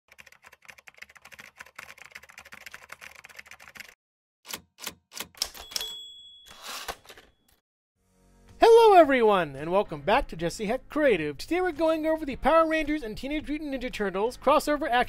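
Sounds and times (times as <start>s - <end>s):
typewriter key clacks: 4.5s - 6.0s
typewriter bell ding: 5.4s - 7.5s.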